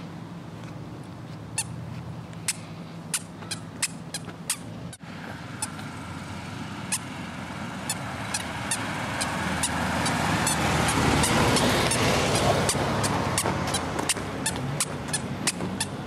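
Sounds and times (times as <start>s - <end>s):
vehicle passing: 0.0s - 16.0s
squeaker shoes squeaking: 1.1s - 5.0s, 5.6s - 5.9s, 6.9s - 7.1s, 7.9s - 16.0s.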